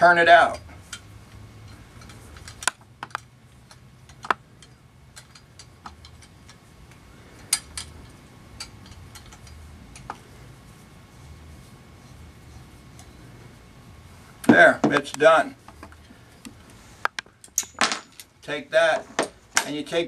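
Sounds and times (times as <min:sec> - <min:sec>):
metal clicks and knocks of pliers: 0:00.6 - 0:08.0.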